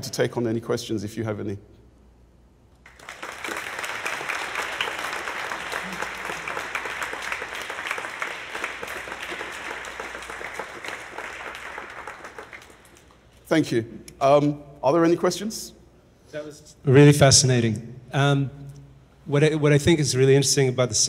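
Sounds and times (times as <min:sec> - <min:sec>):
audience applauding: 0:02.8 - 0:13.2.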